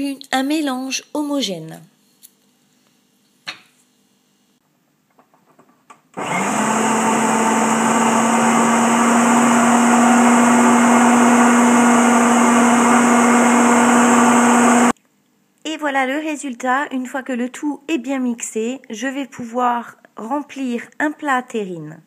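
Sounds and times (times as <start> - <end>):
food processor motor running: 6.2 - 15.0.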